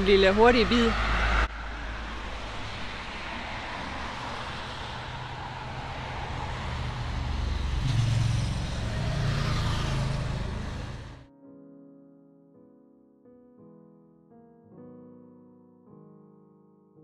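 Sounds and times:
road noise: 0.0s - 11.3s
vehicle engine rumble: 0.0s - 11.3s.

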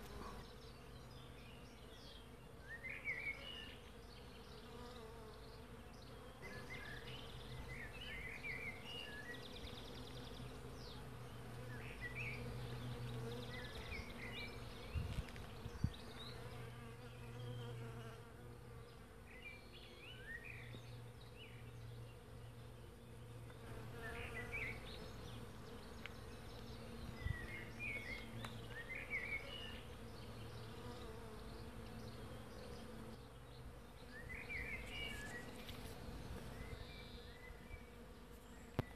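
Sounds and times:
bees humming: 15.6s - 38.9s.

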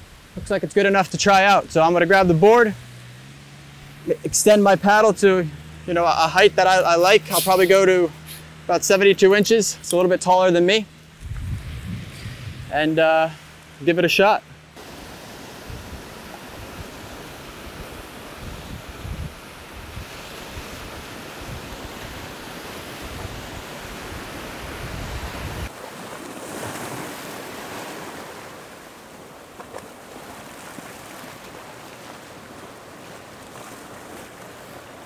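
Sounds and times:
ocean surf on beach: 0.0s - 35.0s
wind buffeting microphone: 11.1s - 13.0s, 15.6s - 25.7s.

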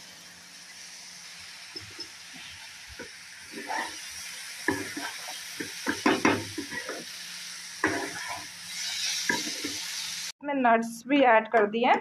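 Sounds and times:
frying sizzle: 0.0s - 10.4s
spatula scraping a pan: 1.8s - 7.2s, 7.8s - 10.2s.

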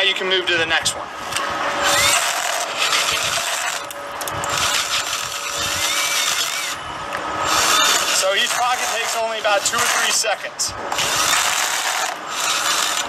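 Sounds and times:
drill motor whine: 1.4s - 10.3s, 10.9s - 13.0s
bit grinding into concrete: 1.7s - 6.8s, 7.4s - 13.0s.

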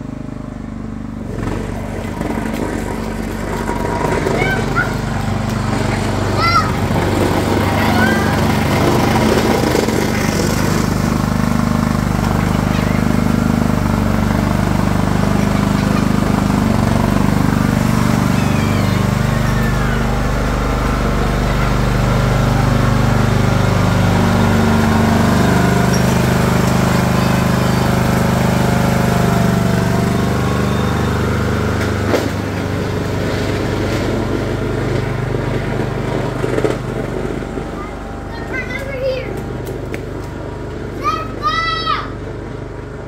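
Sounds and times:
lawn tractor engine running: 0.0s - 43.0s.

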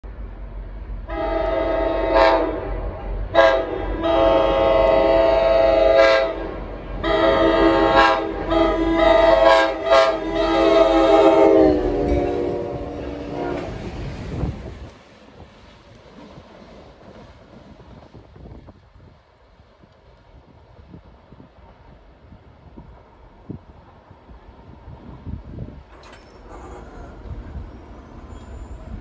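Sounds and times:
locomotive air horn blasts: 1.1s - 13.8s.

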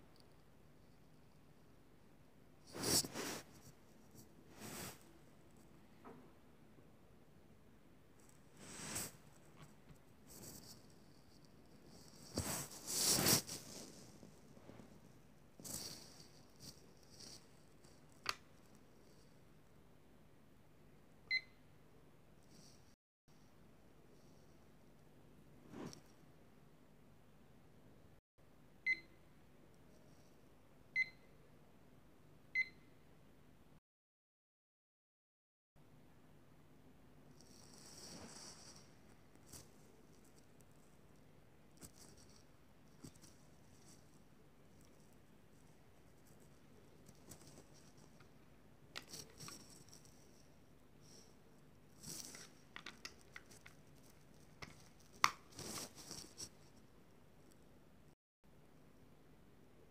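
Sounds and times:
rustling: 8.2s - 19.3s, 51.9s - 57.6s.

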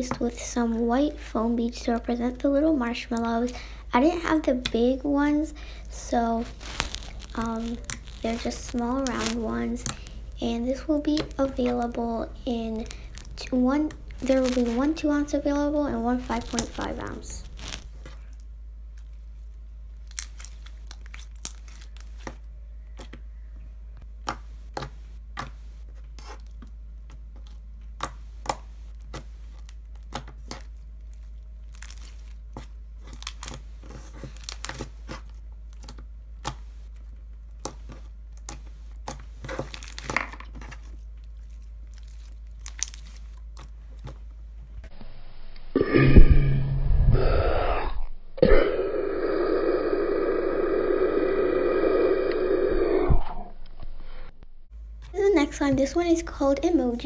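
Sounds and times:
loud muffled sound: 45.8s - 48.6s.

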